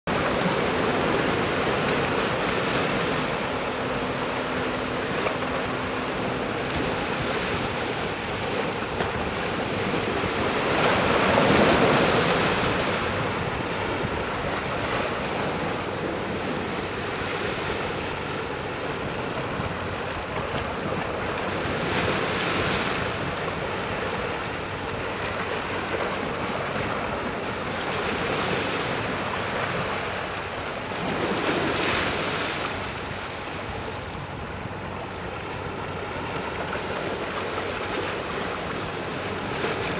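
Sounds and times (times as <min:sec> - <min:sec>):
water washing along ship hull: 0:00.1 - 0:39.9
wind on microphone: 0:00.1 - 0:39.9.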